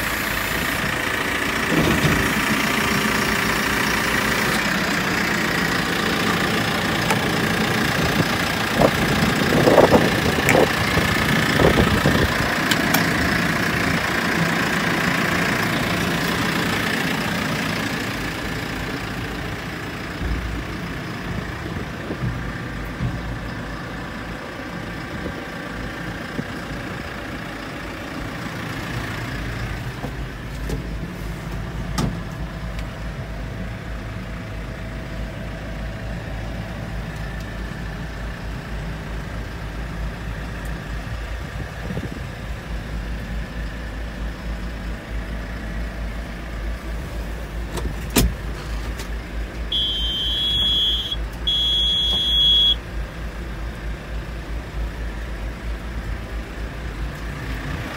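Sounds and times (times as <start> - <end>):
diesel engine idling: 0.0 - 57.9
high electronic beeps: 49.8 - 52.8.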